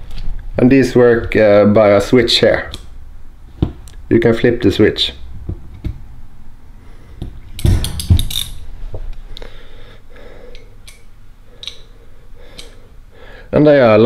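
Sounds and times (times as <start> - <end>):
metal wrenches clinking: 7.6 - 8.7, 11.6 - 11.9.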